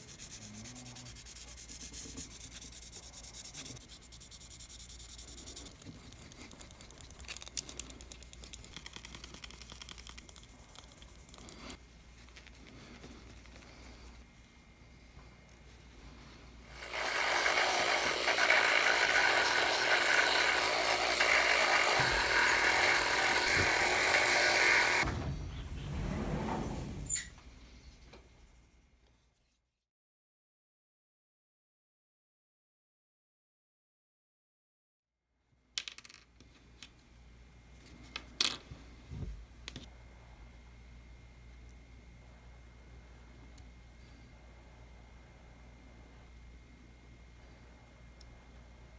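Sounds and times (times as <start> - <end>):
rotary tool whining: 16.7 - 25.1.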